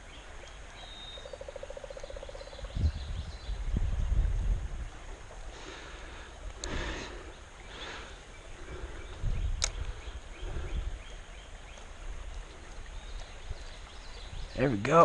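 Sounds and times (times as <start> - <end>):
wind rumbling on microphone: 1.6 - 15.0
sharp click: 9.6 - 9.8.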